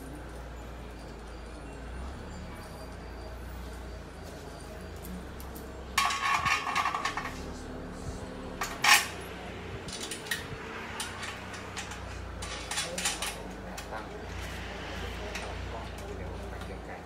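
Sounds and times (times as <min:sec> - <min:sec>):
bolts and tools rattling on metal: 0:05.9 - 0:07.6, 0:08.6 - 0:14.0.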